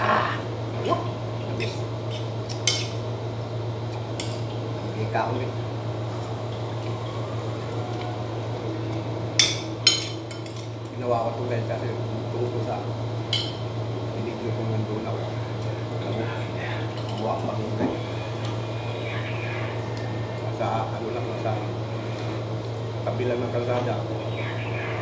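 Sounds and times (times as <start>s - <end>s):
low hum: 0.0s - 25.0s
metal spoon clinking on dish: 2.6s - 3.0s, 9.4s - 10.7s.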